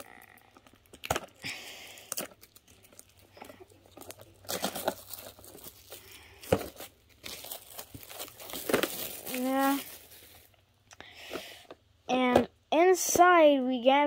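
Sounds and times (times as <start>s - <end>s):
plastic wrap tearing and crinkling: 0.0s - 10.6s.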